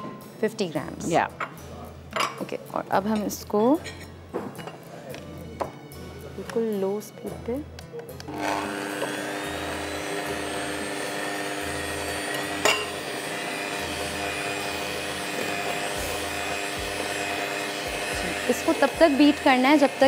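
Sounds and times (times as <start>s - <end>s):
electric beater running: 8.3s - 20.0s.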